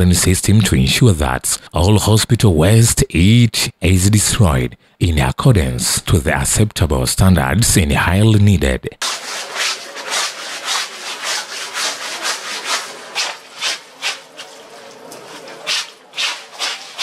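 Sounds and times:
scrub brush scrubbing wet cloth: 0:09.0 - 0:17.0
tap water running: 0:09.0 - 0:17.0.

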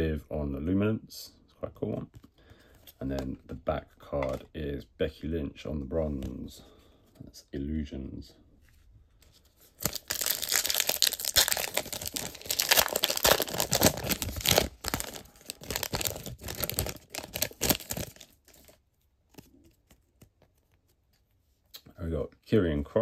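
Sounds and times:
foil wrapper tearing and crinkling: 0:09.8 - 0:18.8.

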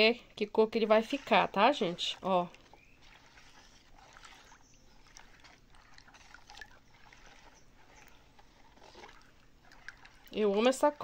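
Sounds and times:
spatula swishing soapy liquid: 0:00.0 - 0:11.0.

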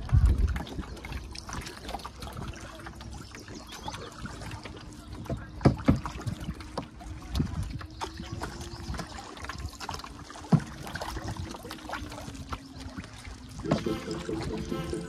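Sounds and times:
water lapping against canoe hull: 0:00.0 - 0:15.0
paddle knocking hull: 0:03.9 - 0:12.4, 0:13.0 - 0:15.0.

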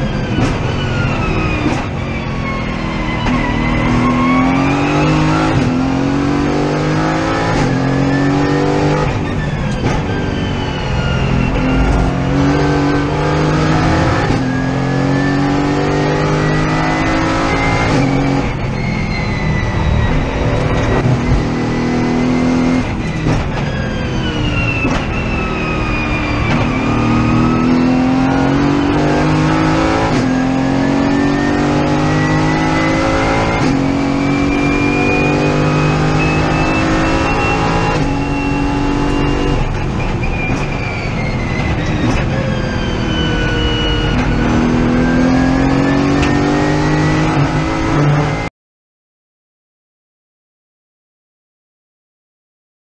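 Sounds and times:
race car engine revving: 0:10.9 - 0:18.6, 0:20.0 - 0:23.5, 0:24.9 - 0:40.8, 0:41.8 - 0:48.5.

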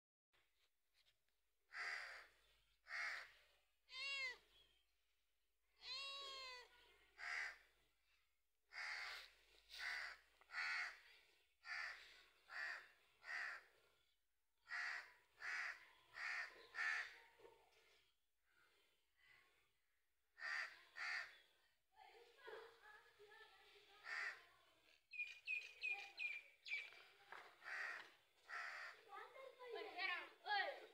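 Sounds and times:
cat meowing: 0:03.9 - 0:04.4, 0:05.8 - 0:06.7.

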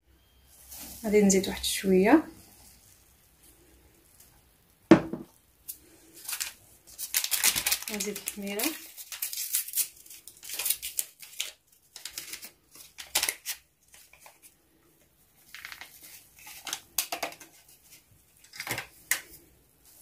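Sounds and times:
paper sachet crinkling: 0:05.7 - 0:20.0
paper tearing: 0:07.1 - 0:13.6.

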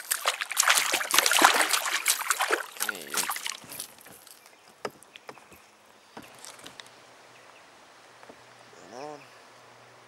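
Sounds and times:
wordless man's voice: 0:02.8 - 0:03.4.

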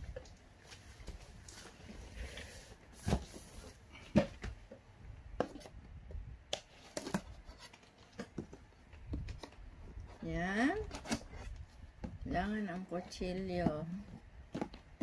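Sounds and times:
cardboard rustle: 0:00.1 - 0:04.6, 0:06.5 - 0:11.8.

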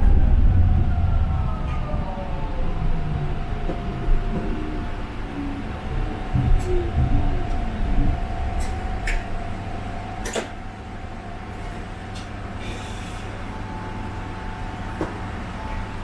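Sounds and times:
tram hum and whine: 0:00.0 - 0:16.0
tram running rumble: 0:00.0 - 0:16.0.

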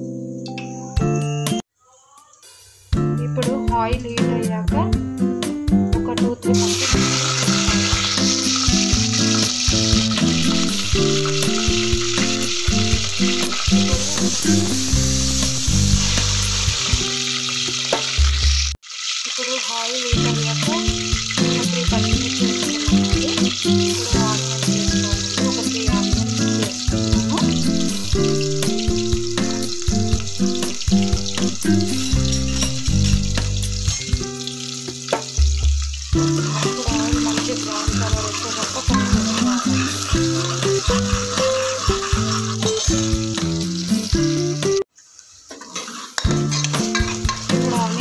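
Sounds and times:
background music with bass line: 0:03.0 - 0:17.2, 0:20.4 - 0:34.6
chillies sizzling in hot oil: 0:06.0 - 0:48.0.

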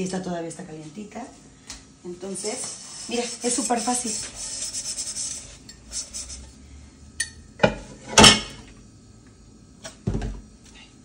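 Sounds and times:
sponge scrubbing a pot: 0:02.4 - 0:06.6
pots clanking together: 0:07.2 - 0:08.6.

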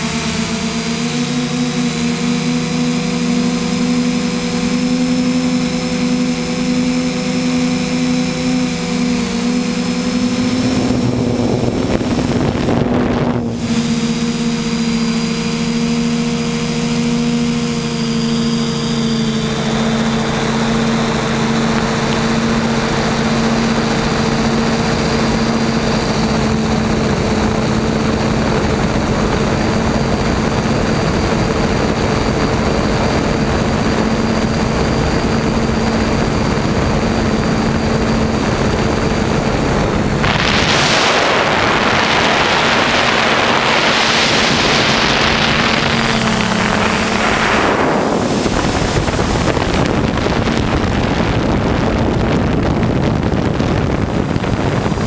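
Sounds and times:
drone motors and propellers whining: 0:00.0 - 0:55.0
rushing hiss: 0:40.2 - 0:49.6.

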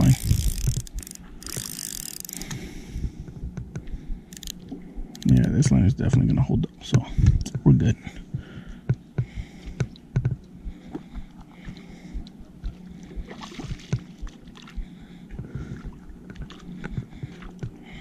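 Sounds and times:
fishing reel clicking: 0:00.0 - 0:02.6, 0:04.3 - 0:05.6.

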